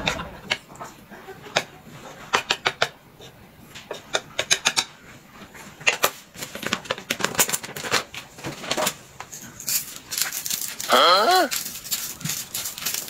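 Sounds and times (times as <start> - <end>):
plastic packet crinkling: 6.4 - 13.0.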